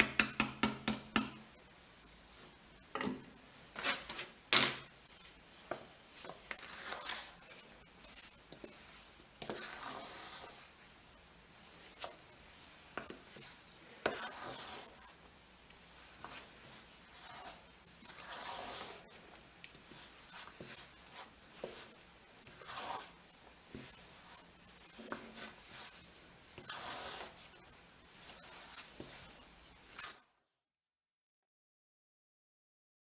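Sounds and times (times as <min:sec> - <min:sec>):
spatula knocking against bowl: 0:00.0 - 0:01.4
spatula scraping dough in bowl: 0:03.2 - 0:10.8, 0:11.7 - 0:30.3.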